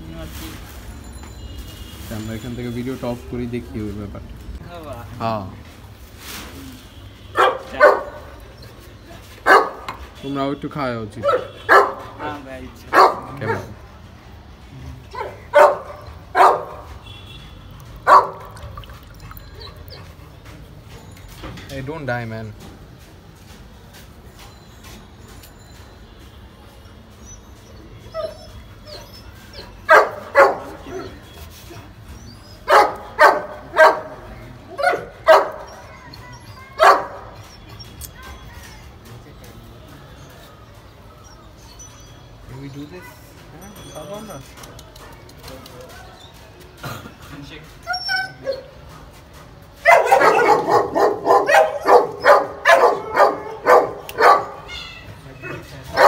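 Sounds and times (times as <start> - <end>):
dog barking: 7.4 - 8.3, 9.4 - 9.9, 11.2 - 12.3, 12.9 - 13.8, 15.1 - 16.9, 18.0 - 18.6, 29.9 - 31.2, 32.6 - 36.0, 36.7 - 37.4, 49.8 - 54.7.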